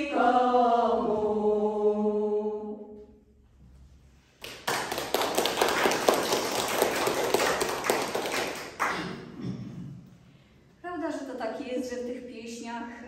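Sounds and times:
audience applause: 4.4 - 9.2.

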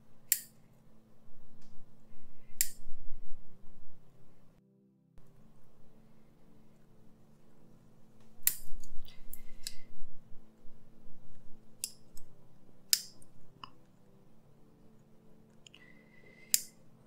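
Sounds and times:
pin cutter snipping wire: 0.3 - 0.6, 2.6 - 2.8, 8.4 - 9.0, 11.8 - 12.3, 12.9 - 13.3
light clicks: 2.6 - 2.8.

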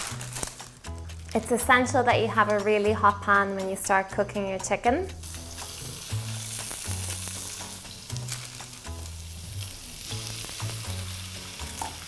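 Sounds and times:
background music with bass line: 0.0 - 12.0
chicken sizzling in oil: 5.2 - 12.0.

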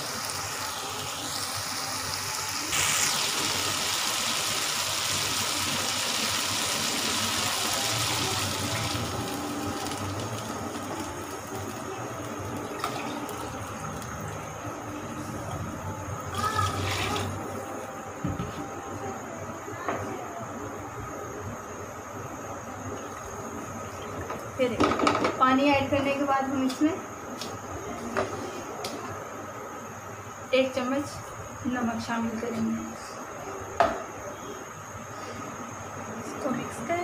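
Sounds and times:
water bubbling in pan: 0.0 - 17.5
water pouring into hot pan: 0.0 - 17.5.

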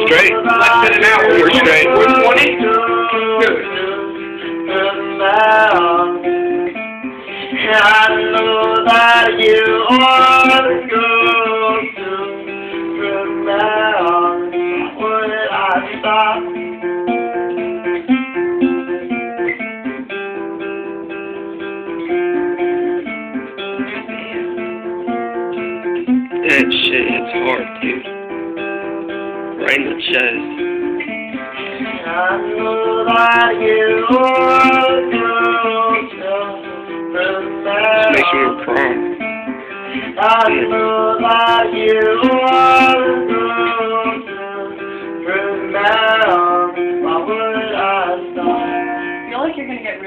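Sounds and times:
man singing: 0.0 - 16.9, 26.3 - 28.1, 31.7 - 49.2
acoustic guitar: 0.0 - 50.0.

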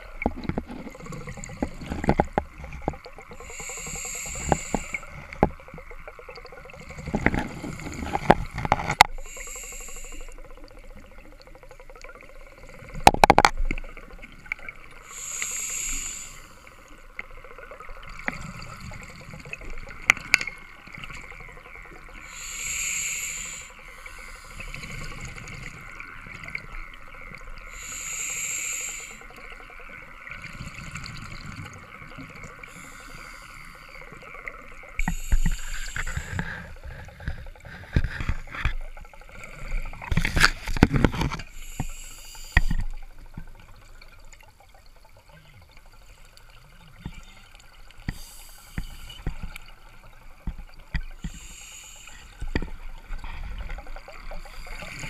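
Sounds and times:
exhaled bubbles underwater: 0.0 - 55.0
regulator hiss: 3.4 - 5.3, 9.2 - 10.4, 15.0 - 16.8, 22.2 - 25.0, 27.7 - 29.4, 35.0 - 36.7, 41.5 - 43.0, 48.1 - 49.4, 51.2 - 52.6.

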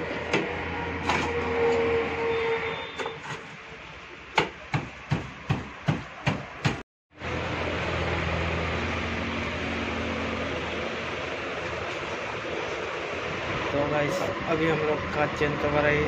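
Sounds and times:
steady background noise: 3.0 - 16.0
sharp knocks: 4.4 - 6.8.

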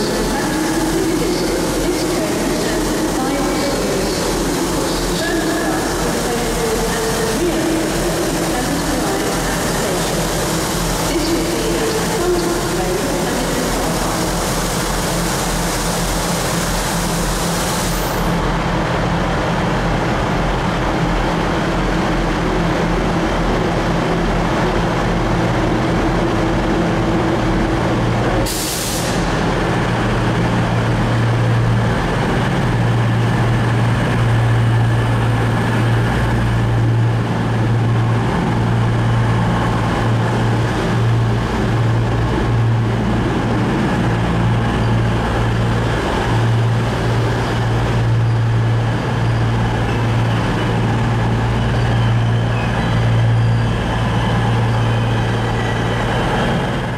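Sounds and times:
train diesel engines humming: 0.0 - 56.9
brake air hiss: 28.5 - 29.4.

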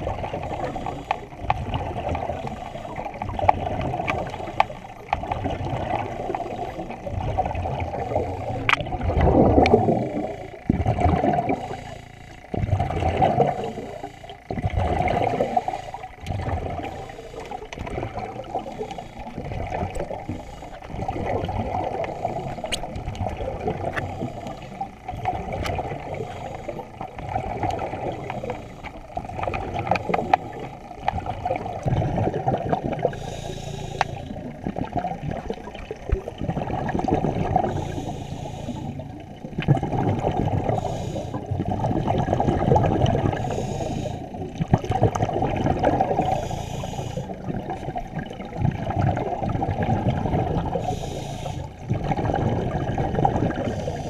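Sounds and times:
underwater sloshing and churning: 0.0 - 54.0
small sharp clicks: 3.4 - 5.3.

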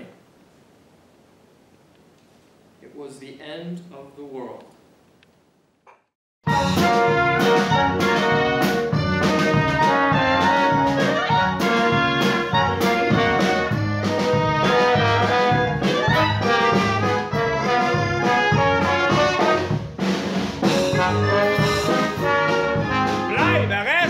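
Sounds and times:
lively band music: 6.4 - 24.0.

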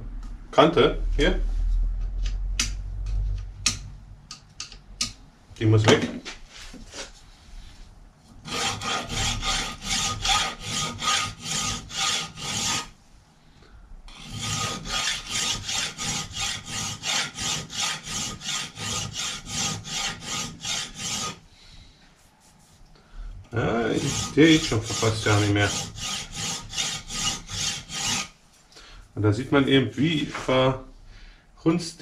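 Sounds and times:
hand file strokes on steel: 8.4 - 13.0, 14.1 - 21.5, 23.6 - 28.4.

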